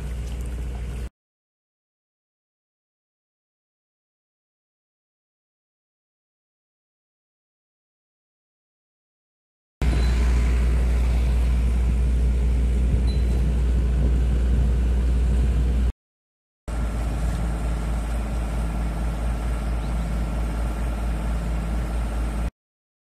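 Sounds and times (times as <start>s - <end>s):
engine-driven water pump running: 0.0s - 1.1s, 9.8s - 15.9s, 16.7s - 22.5s.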